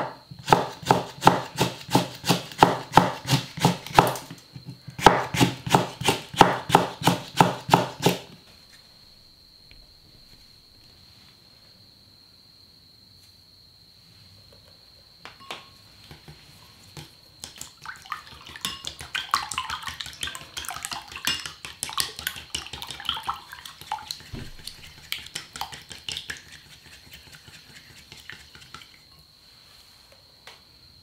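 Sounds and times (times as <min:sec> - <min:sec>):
egg sloshing: 0:17.6 - 0:29.0.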